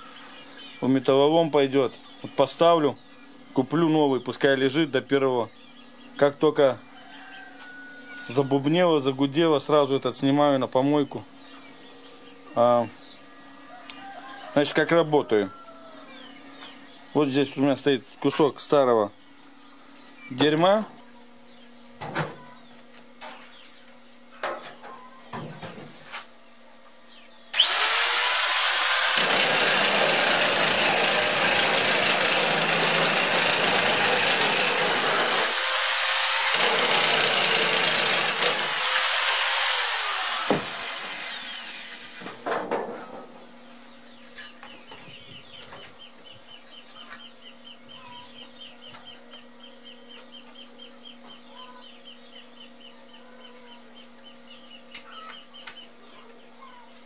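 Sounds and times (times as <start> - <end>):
angle grinder cutting steel: 27.6 - 42.3.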